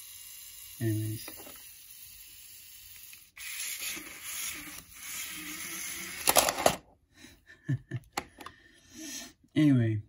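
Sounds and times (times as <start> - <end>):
small electric motor whirring: 0.0 - 6.7
plastic parts clattering: 6.1 - 6.9.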